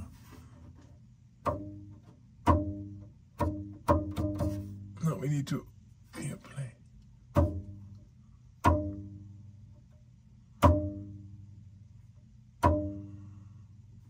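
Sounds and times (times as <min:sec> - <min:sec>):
drive belt plucked twanging: 0:01.4 - 0:05.0, 0:07.3 - 0:09.8, 0:10.5 - 0:11.7, 0:12.5 - 0:13.2.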